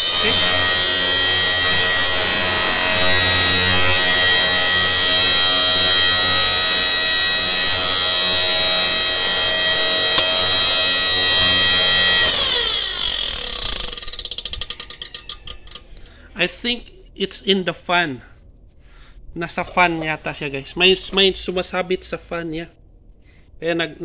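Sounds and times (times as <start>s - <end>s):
fan ticking: 6.2s - 16.2s.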